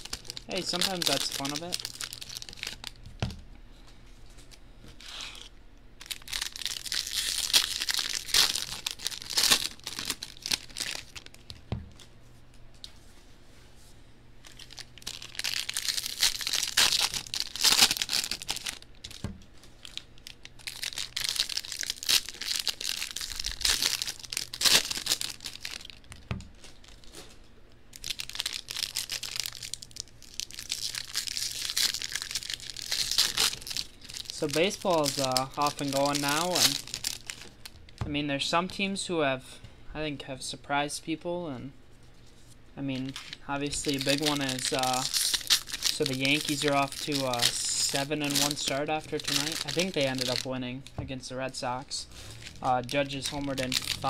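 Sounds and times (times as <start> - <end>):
foil wrappers tearing and crinkling: 0.0 - 3.0, 5.0 - 11.6, 14.4 - 27.3, 27.9 - 37.8, 43.1 - 50.5, 52.2 - 54.0.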